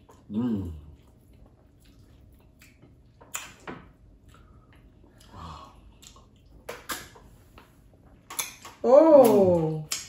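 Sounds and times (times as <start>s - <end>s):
wet mouth smacks: 1.8s - 3.6s.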